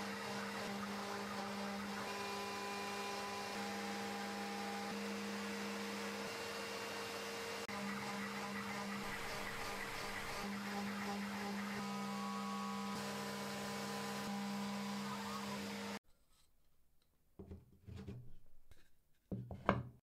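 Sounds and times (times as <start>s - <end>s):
router spindle humming: 0.0s - 16.0s
shop vacuum running: 0.0s - 16.0s.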